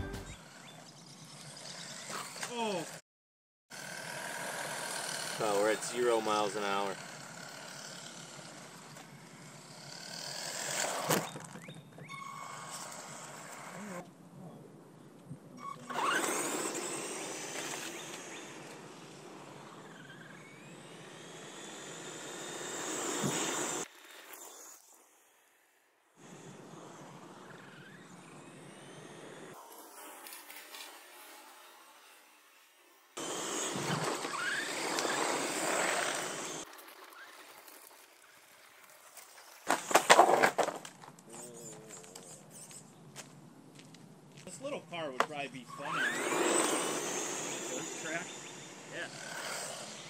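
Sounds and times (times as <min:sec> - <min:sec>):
rc truck electric motor whine: 0:00.0 - 0:03.0, 0:03.7 - 0:14.0, 0:15.6 - 0:43.0, 0:45.7 - 0:50.0
tyre noise on asphalt: 0:33.2 - 0:41.9.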